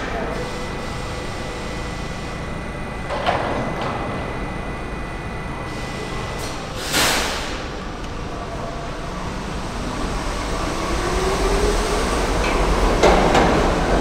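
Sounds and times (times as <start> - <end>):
subway train rumbling: 0.0 - 14.0
faint steady whine: 0.2 - 6.7
short sharp clank: 6.8 - 7.6.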